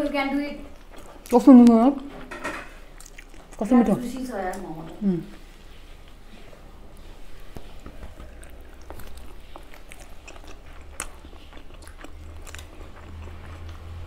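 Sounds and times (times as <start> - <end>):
chewing with wet mouth clicks: 0.7 - 2.1, 2.9 - 5.0, 7.0 - 14.0.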